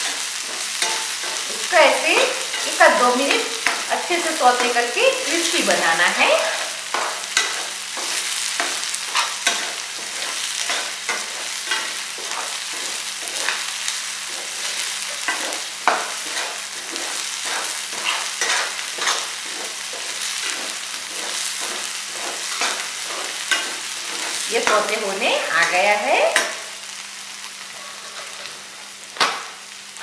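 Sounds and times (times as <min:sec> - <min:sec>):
corn sizzling in hot oil: 0:00.0 - 0:30.0
metal spoon scraping pan: 0:00.4 - 0:13.7, 0:14.3 - 0:26.6, 0:27.8 - 0:28.6.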